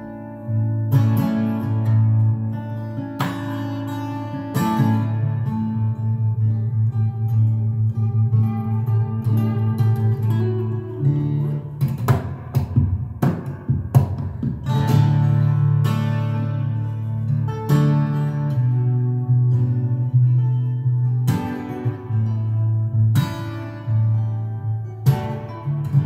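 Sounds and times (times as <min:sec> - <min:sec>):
acoustic guitar playing: 0:00.0 - 0:26.0
percussive strikes on guitar: 0:03.1 - 0:05.0, 0:08.0 - 0:16.5, 0:21.2 - 0:22.2, 0:25.0 - 0:26.0.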